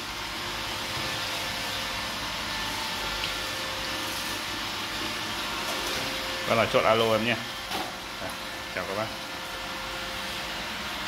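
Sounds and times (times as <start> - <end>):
robot vacuum whirring on tile floor: 0.0 - 11.0.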